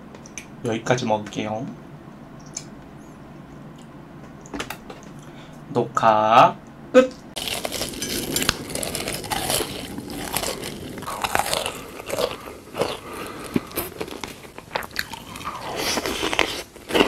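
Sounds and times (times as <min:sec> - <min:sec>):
cherries being chewed: 0:07.4 - 0:17.0.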